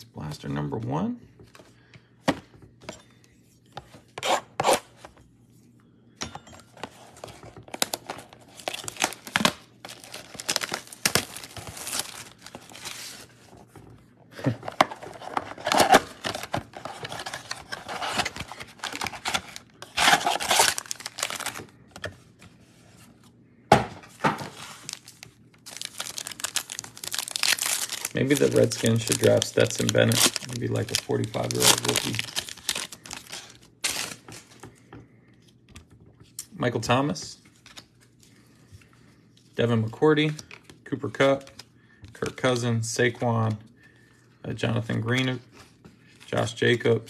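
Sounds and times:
foil packs handled: 7.0 - 13.8, 14.4 - 21.7, 24.4 - 34.6
cardboard box tearing: 14.9 - 21.6.

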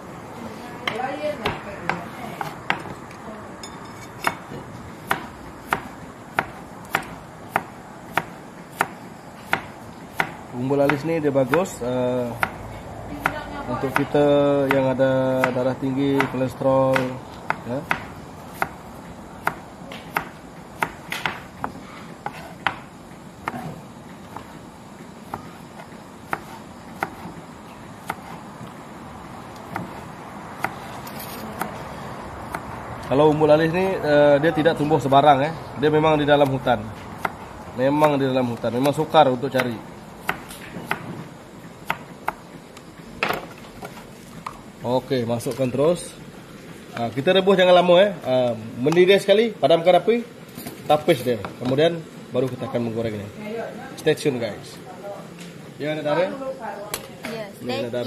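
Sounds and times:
knife chopping on cutting board: 4.2 - 12.6, 13.2 - 18.8, 19.4 - 24.6, 25.3 - 27.4, 28.0 - 28.4, 37.2 - 41.2, 41.8 - 42.5.

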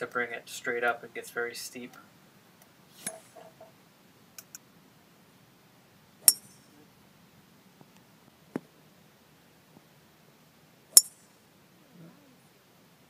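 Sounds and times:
golf club striking ball: 6.2 - 6.5.

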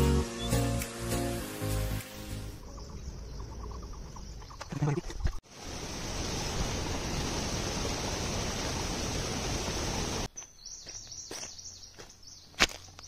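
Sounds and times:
faint bird chirping: 2.6 - 5.4, 10.3 - 13.0.

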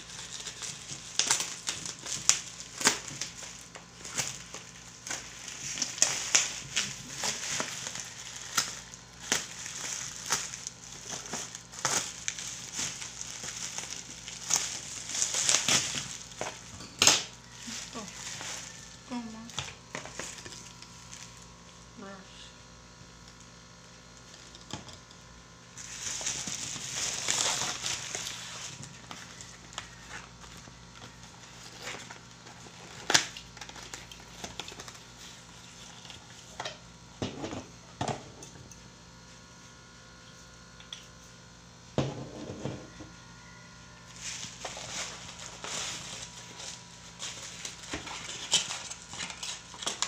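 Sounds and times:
plastic wrapping crinkling: 0.0 - 21.6, 25.7 - 36.6, 44.0 - 50.0.

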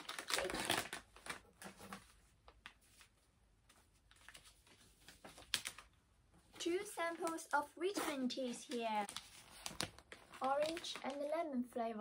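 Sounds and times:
snack packets crinkling: 0.0 - 2.7, 6.8 - 11.3.

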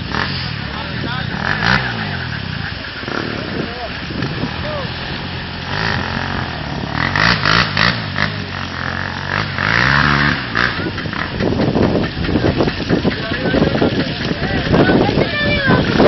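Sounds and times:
quad bike engine revving: 0.0 - 16.0.

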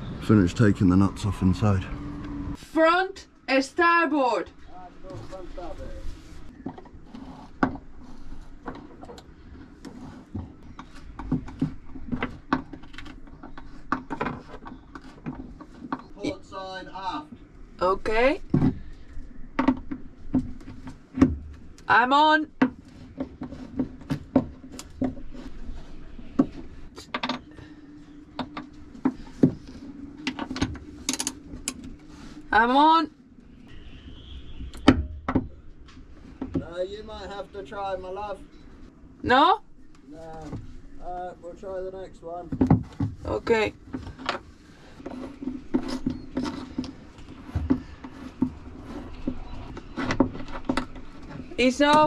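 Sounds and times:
steady low hum: 0.0 - 13.9.

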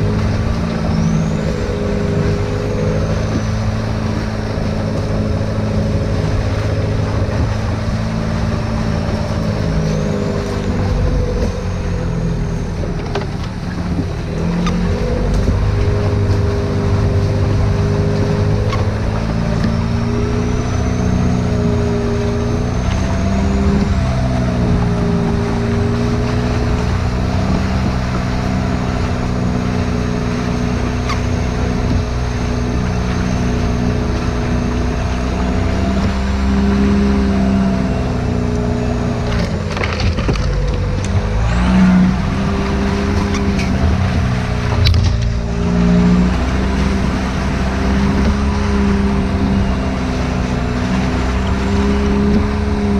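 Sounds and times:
diesel engine running: 0.0 - 52.9.

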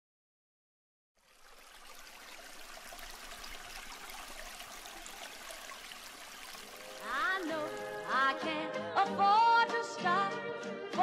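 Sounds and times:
rushing water-like noise: 1.2 - 8.3.

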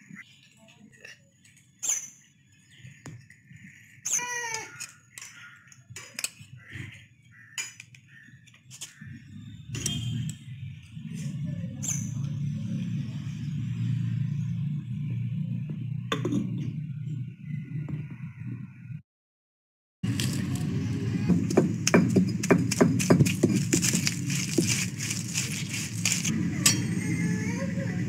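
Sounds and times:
steady low rumble: 20.1 - 27.0.

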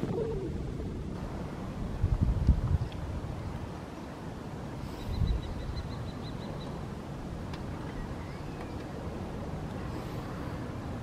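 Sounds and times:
wind rumbling on microphone: 0.0 - 11.0
small bird chirping: 4.9 - 6.8, 7.9 - 9.0.

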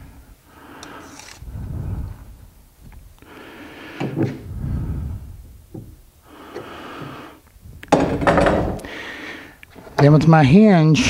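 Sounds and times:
wood knocking and rubbing: 7.9 - 8.8.

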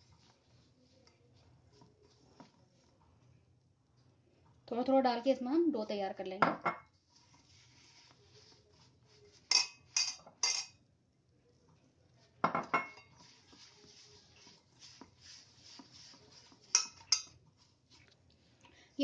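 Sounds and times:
dough rustling by hand: 0.0 - 6.2, 6.9 - 10.5, 11.2 - 19.0
clinks on steel bowl: 9.5 - 10.8.

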